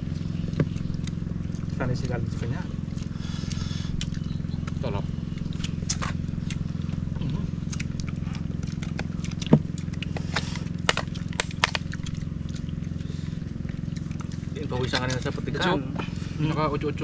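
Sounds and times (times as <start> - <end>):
steady low hum: 0.0 - 17.0
shells and utensils cracking: 10.3 - 12.2.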